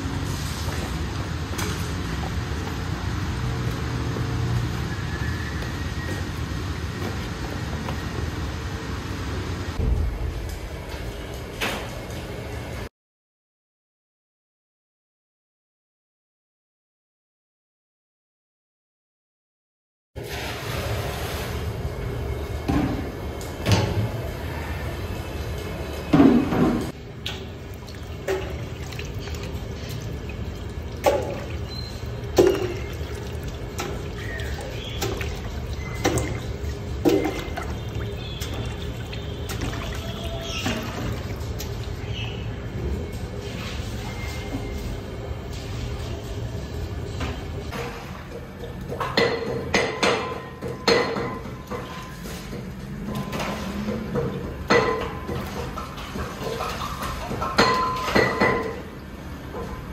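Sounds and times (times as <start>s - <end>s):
water sloshing: 27.4s - 42.4s.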